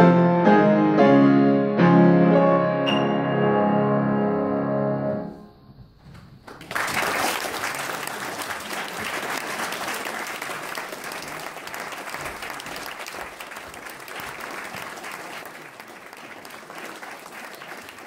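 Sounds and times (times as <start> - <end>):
audience applauding: 6.4 - 18.0.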